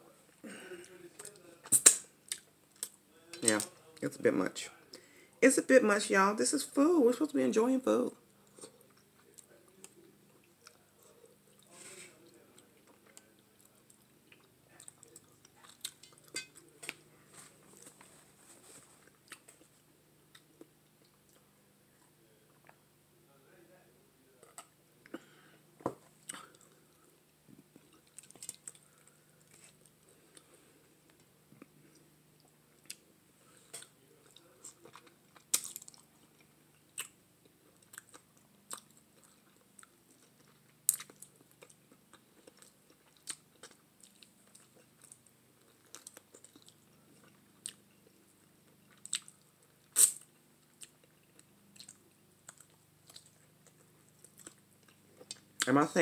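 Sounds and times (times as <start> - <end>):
chewing and mouth smacks: 19.0 - 19.7, 26.2 - 30.5, 33.7 - 55.7.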